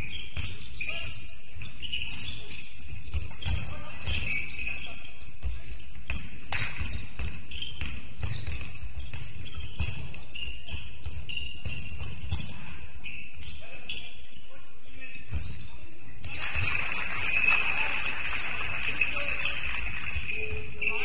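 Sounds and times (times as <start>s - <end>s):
basketball bouncing on court: 0.0s - 13.5s
sneakers squeaking on floor: 0.0s - 17.8s, 18.9s - 21.0s.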